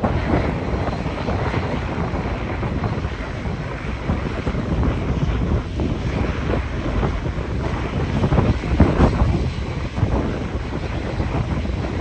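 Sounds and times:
airliner engines rumbling: 0.0s - 12.0s
wind buffeting microphone: 0.0s - 12.0s.

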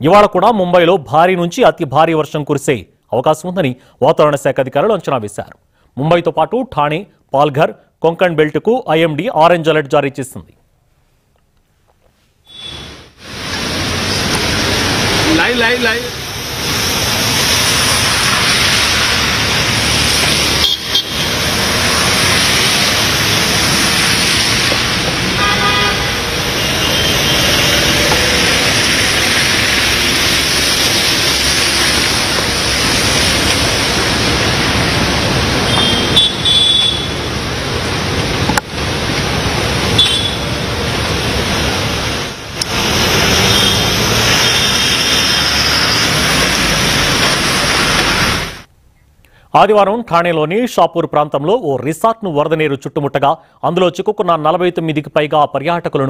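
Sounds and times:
car horn toots: 12.5s - 13.0s, 20.6s - 21.4s, 25.4s - 28.4s, 35.6s - 37.3s, 39.9s - 40.5s, 43.4s - 45.4s
heavy rain: 12.5s - 48.7s
vehicles passing through water: 12.6s - 48.7s.

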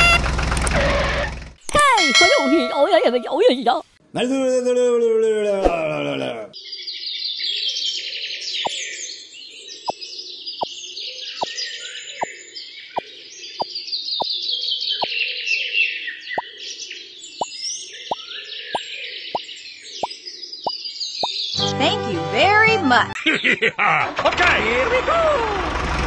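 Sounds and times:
birds chirping: 6.5s - 23.6s.

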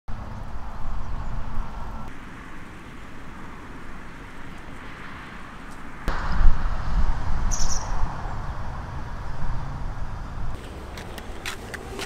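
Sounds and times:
short high bird chirp: 7.5s - 8.0s.

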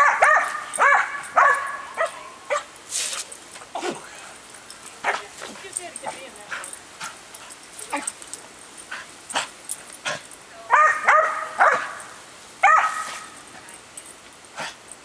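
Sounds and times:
dog barking: 0.0s - 2.7s, 10.7s - 13.4s.

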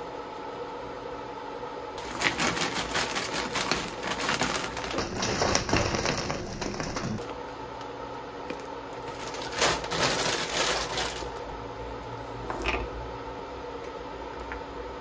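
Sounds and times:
rapid clicking and crackling: 2.0s - 7.2s, 9.0s - 11.5s.

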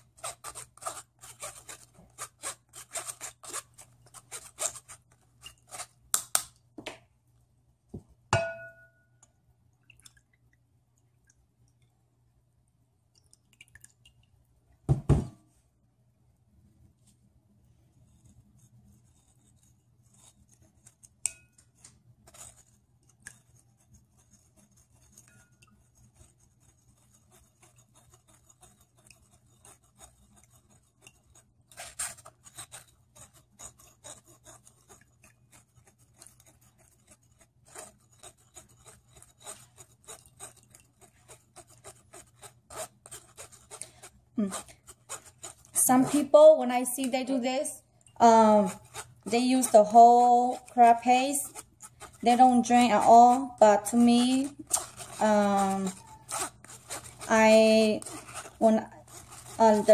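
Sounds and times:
spoon scraping a strainer: 0.0s - 6.0s, 24.4s - 59.9s.

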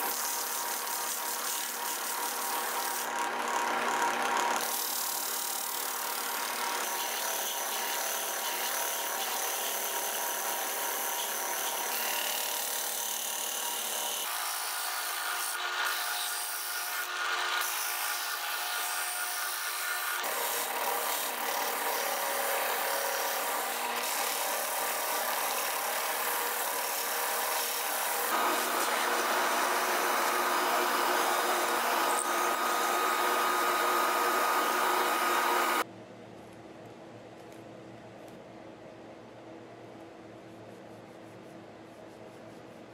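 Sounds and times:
drill press whirring: 27.6s - 35.8s.

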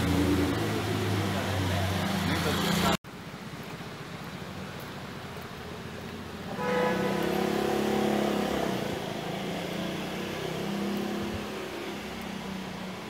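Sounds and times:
vehicle engine droning: 0.0s - 3.0s, 5.8s - 13.0s
street noise: 0.0s - 13.0s.

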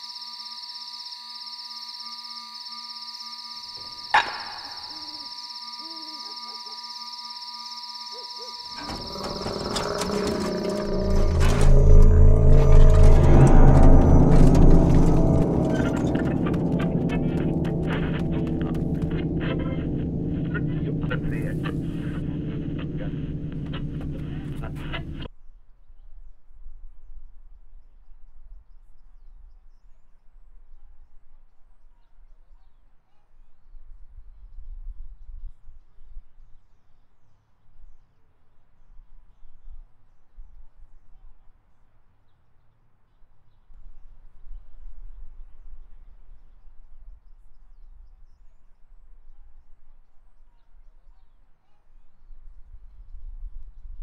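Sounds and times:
faint bird chirps: 0.0s - 11.1s
low uneven rumble: 8.8s - 25.3s.

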